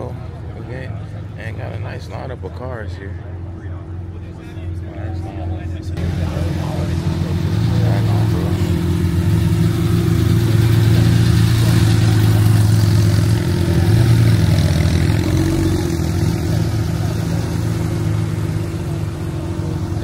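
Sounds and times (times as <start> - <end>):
car engine running at low revs: 0.0 - 20.0.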